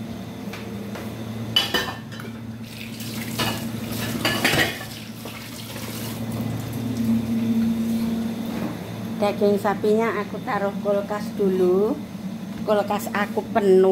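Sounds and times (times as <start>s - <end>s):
dishes clinking and clattering: 1.6s - 2.4s, 3.3s - 5.0s.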